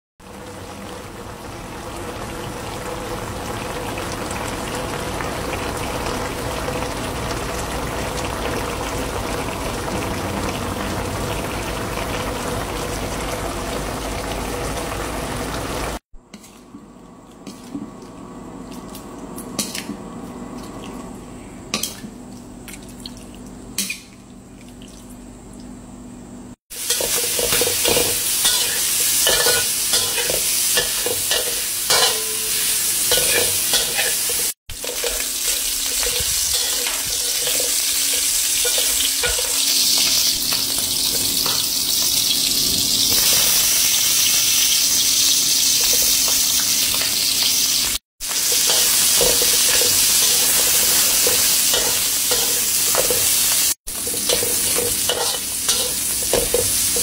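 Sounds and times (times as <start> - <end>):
meat sizzling in a pan: 26.7 - 57.0
spatula stirring: 53.9 - 57.0.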